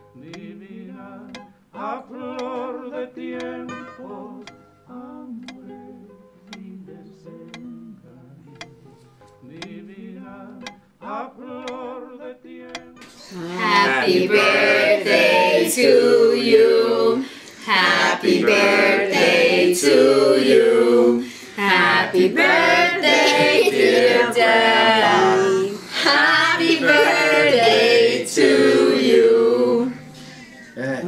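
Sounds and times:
group singing a birthday song: 0.0s - 5.8s, 9.4s - 30.9s.

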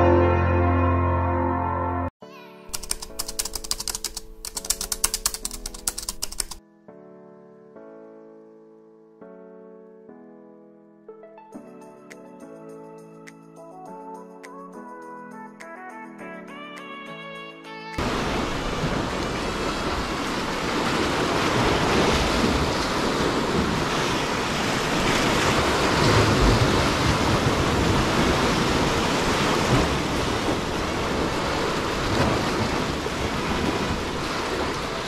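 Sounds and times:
surf sloshing among concrete blocks: 18.0s - 35.0s
wind on microphone: 18.0s - 35.0s.

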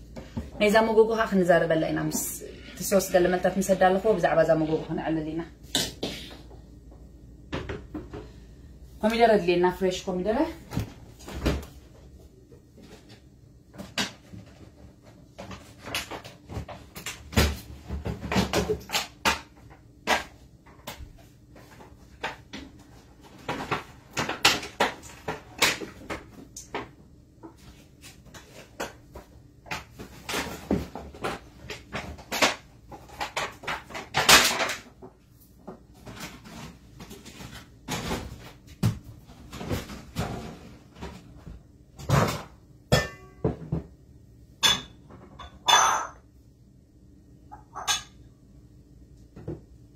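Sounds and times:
kitchen items knocking and clicking: 5.7s - 8.4s, 12.5s - 44.0s, 44.6s - 46.3s, 47.5s - 48.3s.

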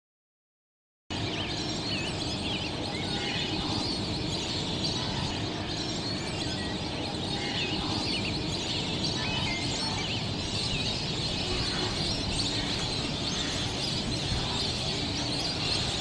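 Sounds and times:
birds chirping and whistling: 1.1s - 16.0s.

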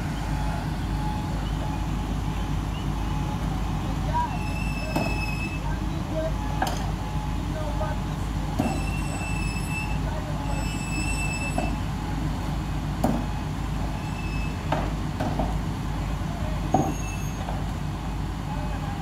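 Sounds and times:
heavy machinery engine rumbling: 0.0s - 19.0s
short high squeals: 4.3s - 5.7s, 8.6s - 11.9s, 13.9s - 14.7s, 16.8s - 17.5s.

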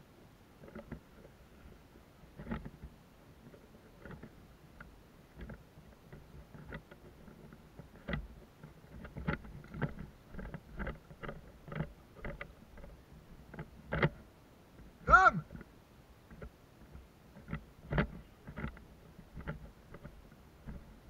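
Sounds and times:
gear rattling: 5.4s - 15.0s.

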